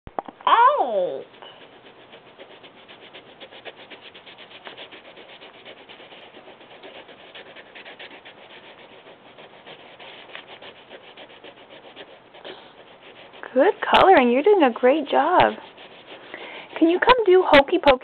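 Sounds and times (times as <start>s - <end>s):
crayon scribbling on paper: 0.6s - 18.0s.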